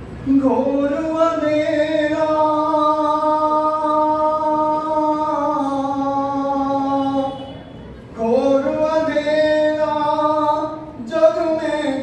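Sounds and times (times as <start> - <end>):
man singing a long note: 0.2 - 7.5.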